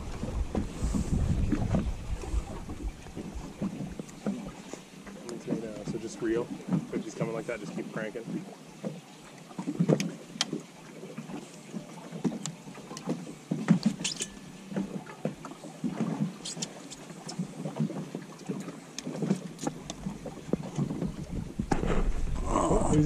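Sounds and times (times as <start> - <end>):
wind on microphone: 0.0 - 4.6, 20.0 - 23.0
waves slapping against boat hull: 0.0 - 23.0.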